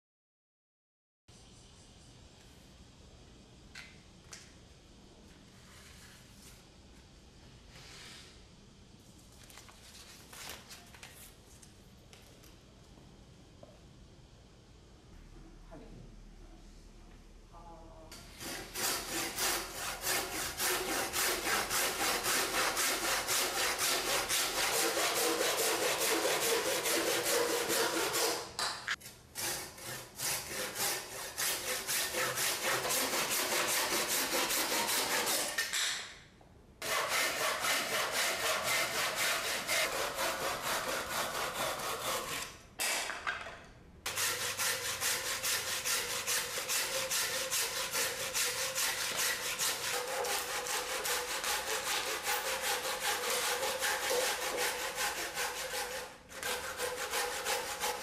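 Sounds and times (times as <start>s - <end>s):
hand saw cutting wood: 18.2s - 35.7s, 36.8s - 42.6s, 44.1s - 58.0s.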